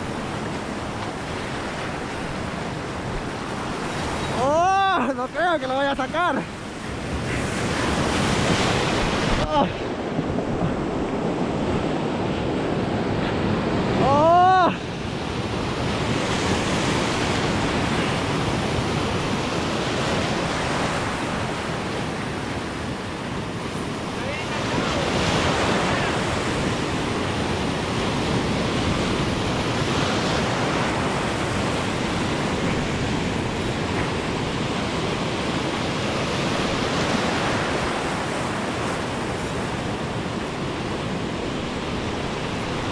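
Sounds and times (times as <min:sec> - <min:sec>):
surf on rocky shore: 0:00.0 - 0:42.9
person shouting: 0:04.3 - 0:05.2, 0:09.4 - 0:09.8, 0:14.0 - 0:14.8.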